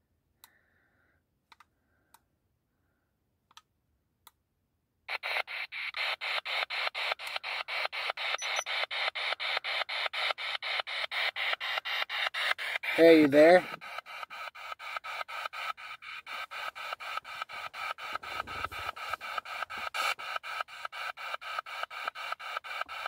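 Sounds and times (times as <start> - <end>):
radio static bursts sweeping: 5.1 - 23.0.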